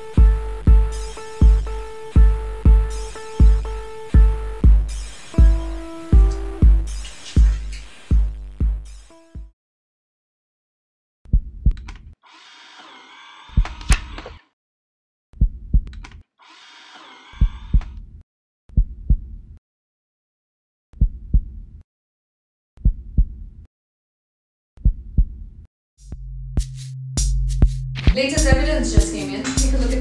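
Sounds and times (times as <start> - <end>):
low hum: 0.0 - 9.0
heartbeat thumping: 0.1 - 9.5, 15.4 - 15.9, 24.8 - 25.4, 27.5 - 30.0.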